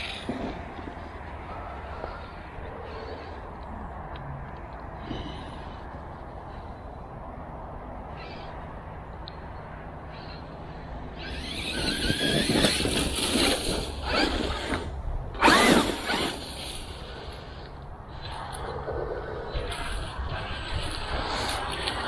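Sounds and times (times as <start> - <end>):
electric motor whining: 11.2 - 16.4.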